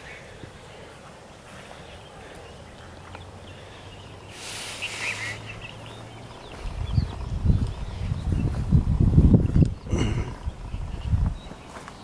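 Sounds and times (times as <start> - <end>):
bird chirping: 0.0 - 12.0
rushing hiss: 4.3 - 5.6.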